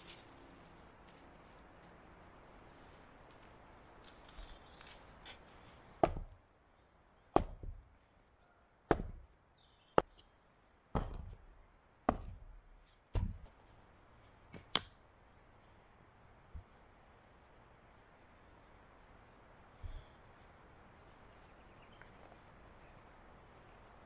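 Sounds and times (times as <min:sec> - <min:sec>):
chopping blows: 0:05.9 - 0:06.4, 0:07.3 - 0:08.0, 0:08.9 - 0:09.3, 0:10.9 - 0:11.4, 0:12.0 - 0:13.5.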